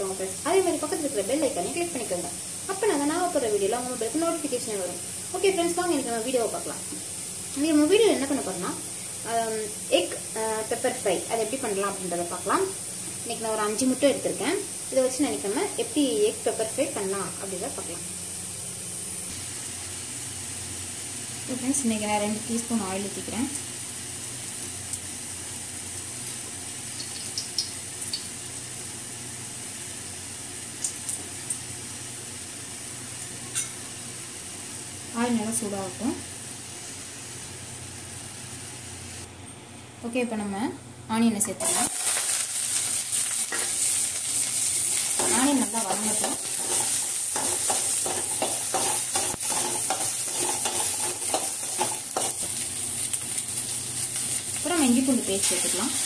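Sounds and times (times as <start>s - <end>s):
oil sizzling in a pan: 0.0s - 39.3s, 41.6s - 56.0s
spatula scraping pan: 45.2s - 52.5s.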